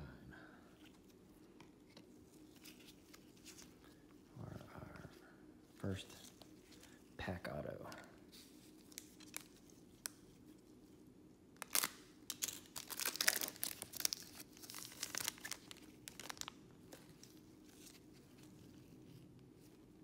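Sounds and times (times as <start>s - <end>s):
foil wrapper tearing and crinkling: 8.8s - 10.2s, 11.6s - 16.6s.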